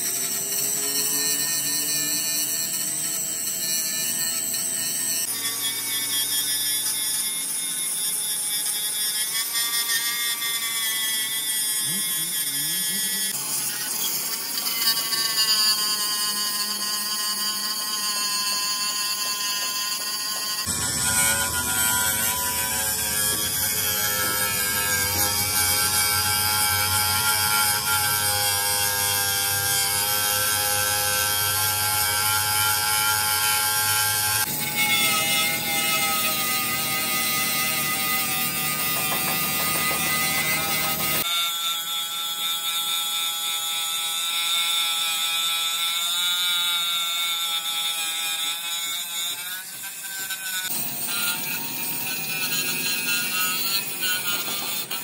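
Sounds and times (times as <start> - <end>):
power tools whining: 0.0 - 41.3, 49.3 - 55.0.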